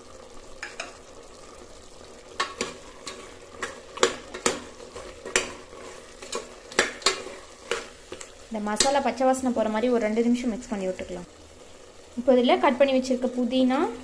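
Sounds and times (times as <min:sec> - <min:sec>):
meat sizzling in oil: 0:00.0 - 0:14.0
ladle clinking and scraping pot: 0:02.4 - 0:09.0.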